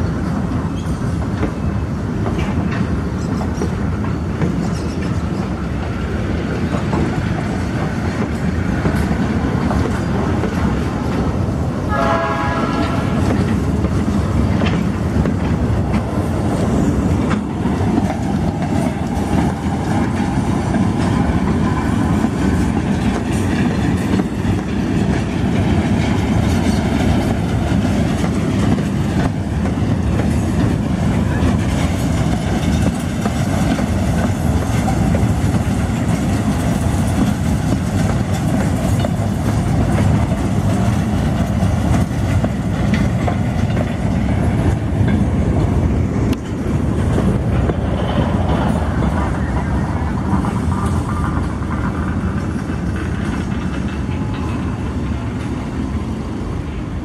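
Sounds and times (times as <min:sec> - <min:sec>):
steel wheels rolling on rails: 0:00.0 - 0:57.0.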